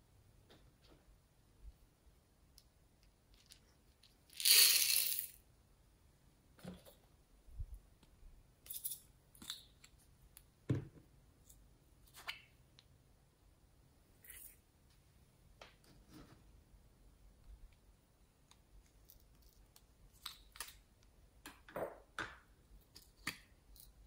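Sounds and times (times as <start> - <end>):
plastic beads pouring: 4.3 - 5.4.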